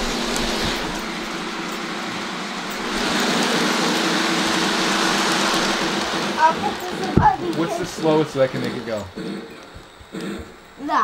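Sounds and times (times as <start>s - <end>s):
model train running on track: 0.0s - 11.0s.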